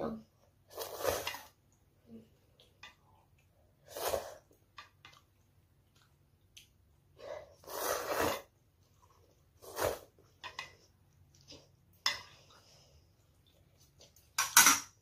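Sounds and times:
child slurping noodles: 0.7s - 1.6s, 3.8s - 4.5s, 7.2s - 8.6s, 9.6s - 10.2s.

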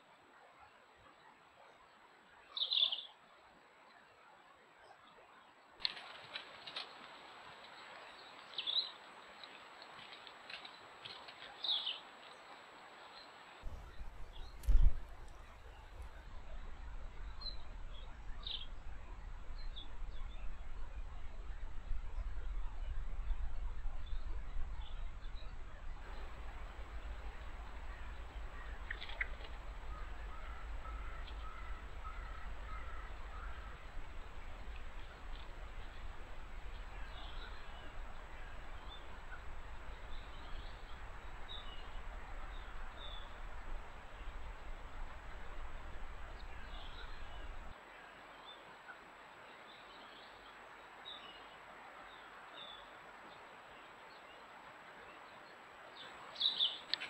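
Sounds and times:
rustles in dry leaves: 5.8s - 13.0s, 26.0s - 47.7s
low woodland rumble: 13.6s - 47.7s
steady hiss: 25.9s - 48.5s.

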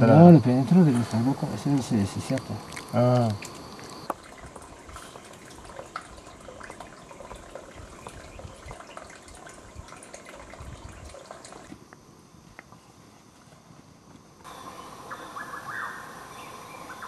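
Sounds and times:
water trickling over rock: 0.5s - 11.8s.

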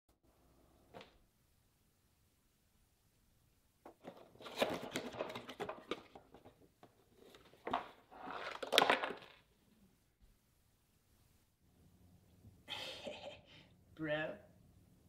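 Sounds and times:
cardboard rustling and tearing: 4.1s - 6.5s.

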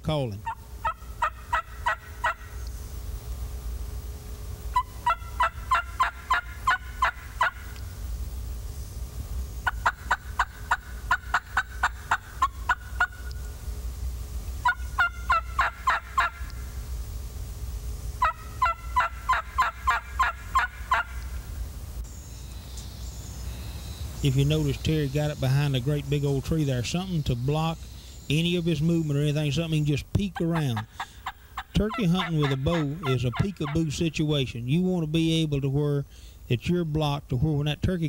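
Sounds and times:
turkey call hen yelps: 0.4s - 2.6s, 4.7s - 7.8s, 9.6s - 13.3s, 14.6s - 16.6s, 18.2s - 21.3s, 30.3s - 33.9s.

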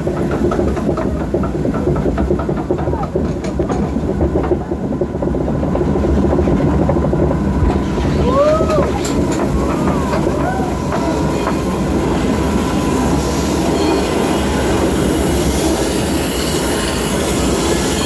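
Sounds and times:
log flume ride rumble: 0.0s - 18.0s.

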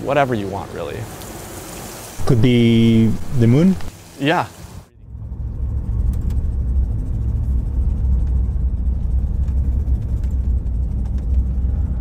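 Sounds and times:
car cabin road and engine rumble: 5.1s - 12.0s.

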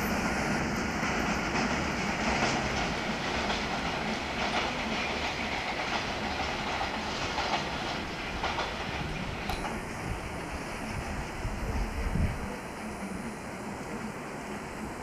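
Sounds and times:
freight train rumbling: 0.0s - 15.0s
wheels clacking over rail joints: 0.8s - 10.4s.

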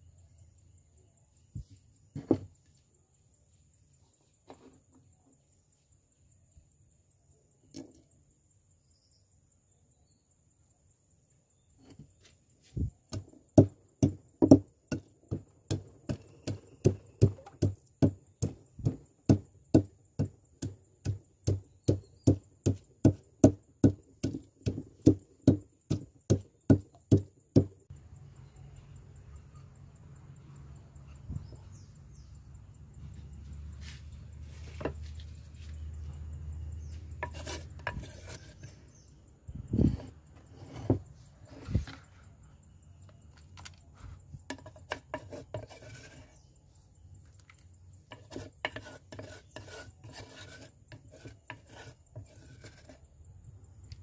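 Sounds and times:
wooden pestle pounding in mortar: 13.1s - 27.8s
low rubbing with light knocks: 39.6s - 42.2s.

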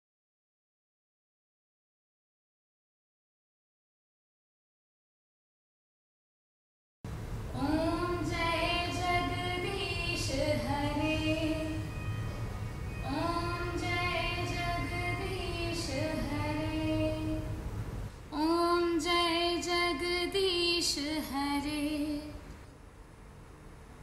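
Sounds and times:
woman singing: 7.6s - 12.1s, 13.0s - 17.6s, 18.3s - 22.5s.

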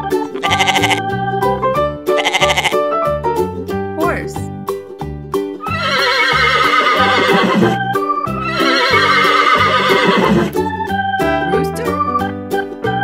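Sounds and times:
background music with steady beat: 0.0s - 13.0s
horse whinnying: 0.4s - 1.0s, 2.2s - 2.8s, 5.6s - 7.8s, 8.4s - 10.6s.

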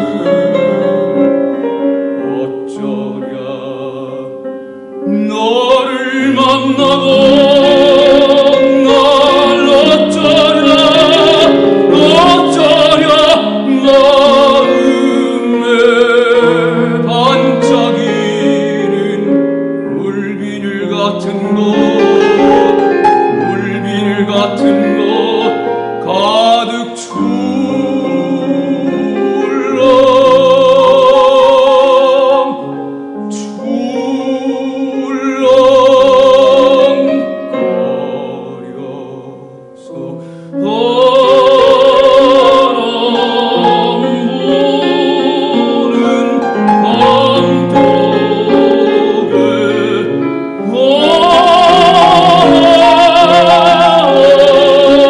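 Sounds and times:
man singing operatically: 0.0s - 1.4s, 2.0s - 55.0s
piano accompaniment: 0.0s - 55.0s.

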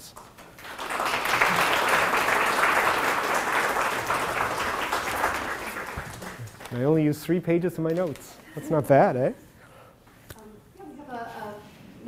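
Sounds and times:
audience applauding: 0.2s - 7.0s.

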